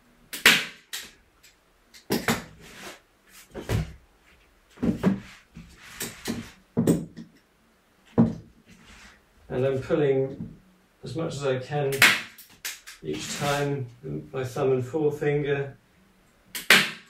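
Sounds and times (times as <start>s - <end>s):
frame knocking on wooden floor: 4.8s - 5.3s, 8.2s - 8.5s.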